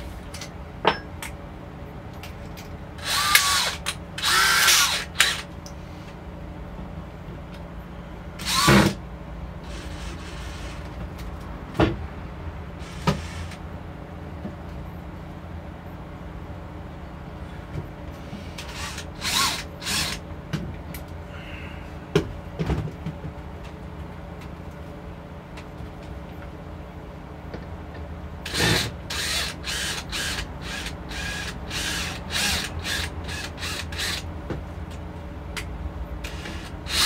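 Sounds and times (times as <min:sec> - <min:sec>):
drill driving screws into wood: 0:03.0 - 0:05.5, 0:08.4 - 0:09.0, 0:12.8 - 0:13.6, 0:18.5 - 0:20.2, 0:28.5 - 0:34.2, 0:36.3 - 0:37.0.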